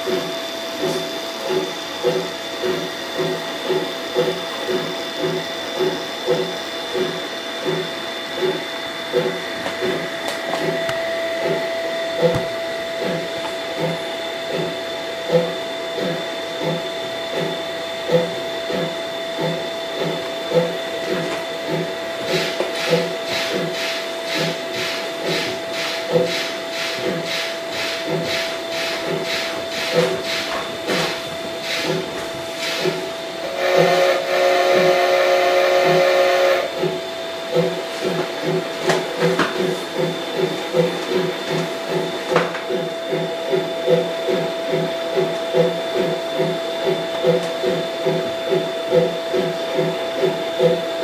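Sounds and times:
model steam locomotive chuffing: 0:00.0 - 0:10.1, 0:13.0 - 0:38.7, 0:39.6 - 0:51.0
model train motor whine: 0:33.4 - 0:36.9.

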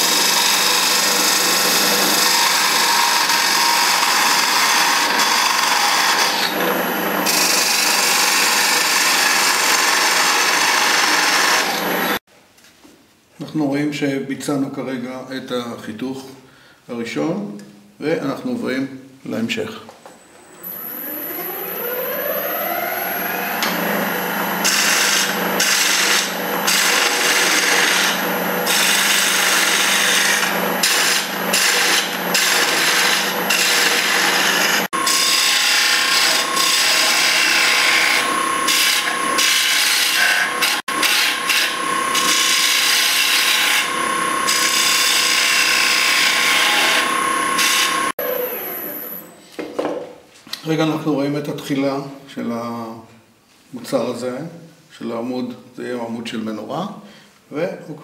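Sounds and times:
chisel scraping spinning wood: 0:00.0 - 0:12.2, 0:23.3 - 0:48.1
wood lathe whine: 0:00.0 - 0:12.2, 0:20.6 - 0:49.3.

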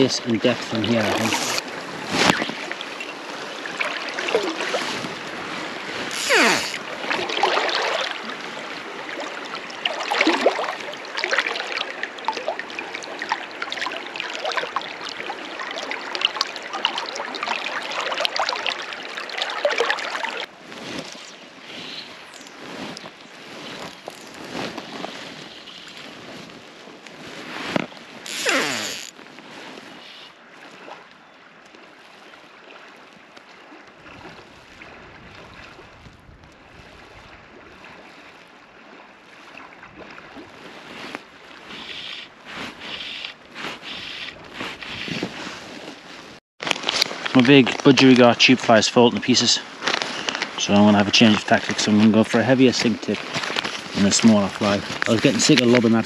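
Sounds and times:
river water rushing: 0:00.0 - 0:20.5, 0:28.2 - 0:29.1
water swishes: 0:00.0 - 0:56.0.

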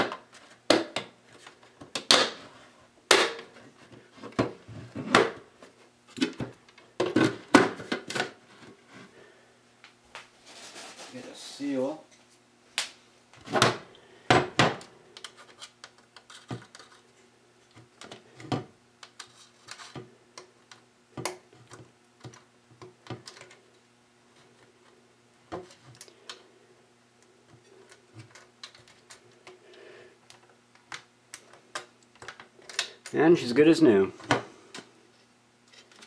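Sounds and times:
plastic parts clicking and knocking: 0:00.0 - 0:02.4, 0:13.6 - 0:17.0, 0:17.7 - 0:23.6, 0:30.3 - 0:33.2.

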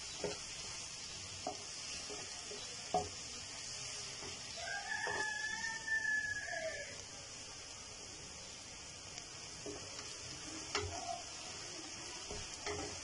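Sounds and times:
food sizzling in a frying pan: 0:00.0 - 0:13.0
wooden spatula knocking pan: 0:00.1 - 0:00.6, 0:01.4 - 0:03.3, 0:04.2 - 0:05.4, 0:12.2 - 0:13.0
drawn-out rising falling call: 0:04.6 - 0:07.0.

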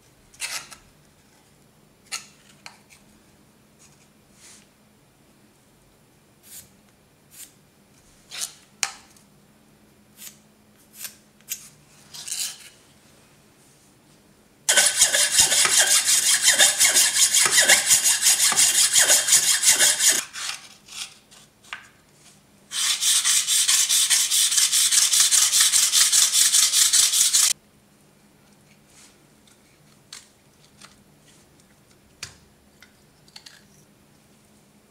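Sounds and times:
stone scraping on diamond plate: 0:14.7 - 0:20.2.

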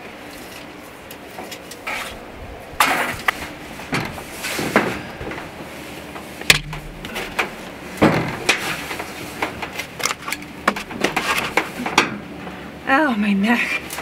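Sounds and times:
scrapes and knocks on metal roofing: 0:02.8 - 0:12.3.

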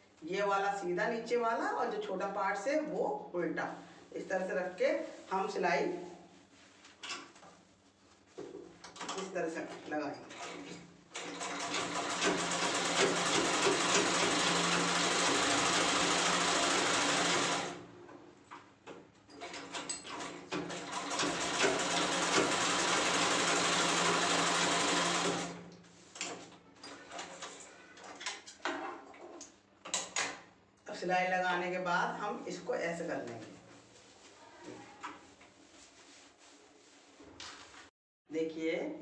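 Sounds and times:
fabric rustling: 0:06.3 - 0:08.8, 0:33.6 - 0:37.9
sewing machine stitching: 0:10.3 - 0:17.8, 0:19.4 - 0:25.6.

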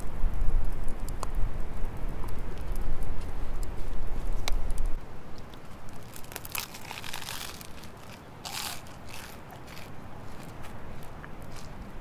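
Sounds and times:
chewing a hamburger: 0:06.0 - 0:10.6.

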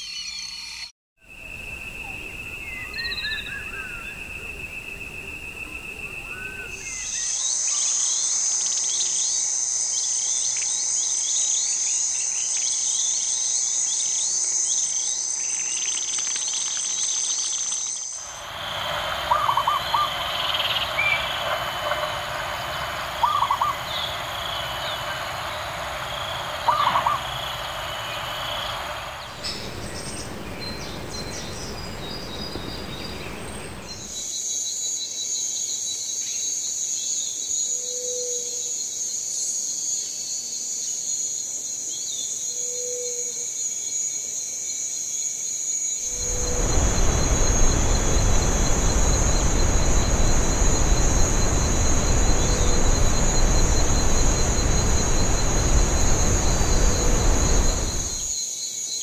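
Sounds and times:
high insect drone: 0:01.3 - 0:10.2, 0:18.0 - 0:34.3, 0:46.0 - 0:59.0
soft hiss: 0:18.2 - 0:34.2, 0:46.0 - 0:58.3
bird chirps: 0:18.2 - 0:34.3
dove cooing: 0:18.5 - 0:33.9.

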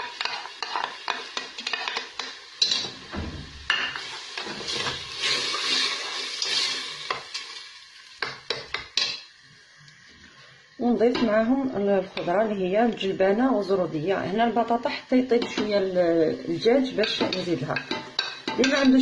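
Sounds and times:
spoon stirring in a metal pot: 0:00.0 - 0:03.0, 0:03.7 - 0:07.4, 0:16.8 - 0:19.0
frying sizzle: 0:00.0 - 0:19.0.

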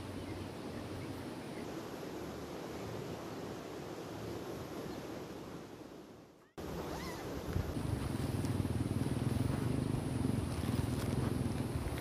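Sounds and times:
wind noise on microphone: 0:06.6 - 0:12.0.

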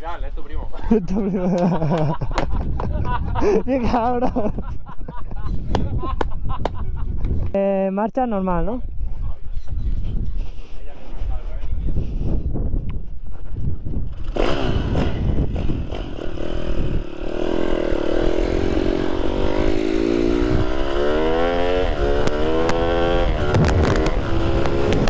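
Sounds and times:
wind rumble on microphone: 0:00.2 - 0:07.8, 0:08.4 - 0:25.0
motorbike engine revving: 0:14.1 - 0:25.0.

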